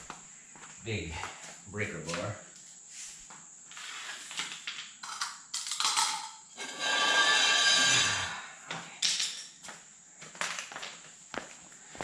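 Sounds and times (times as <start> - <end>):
metal tools clanking on concrete: 5.0 - 8.4, 9.0 - 9.6.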